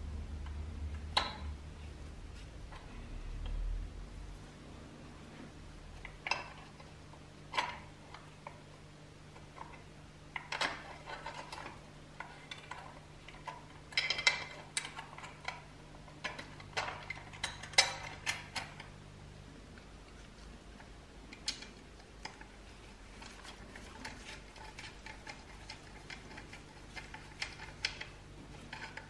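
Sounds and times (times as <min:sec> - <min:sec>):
metal toy parts clicking and knocking: 0:10.4 - 0:15.6, 0:16.2 - 0:18.9.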